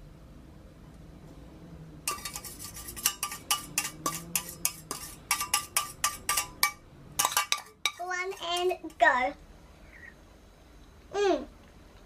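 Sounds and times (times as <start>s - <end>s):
metal tongs scraping a steel pan: 2.1s - 9.1s.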